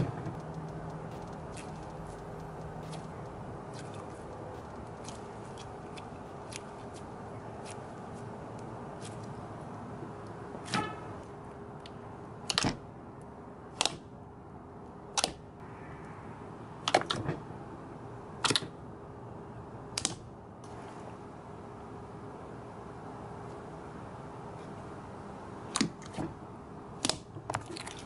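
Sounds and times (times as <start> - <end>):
low hiss: 0.0 - 11.2
faint hum: 0.0 - 28.0.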